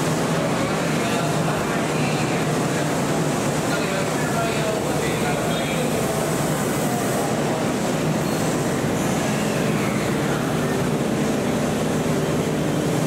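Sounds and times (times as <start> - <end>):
train wheels and motors rumbling: 0.0 - 13.0.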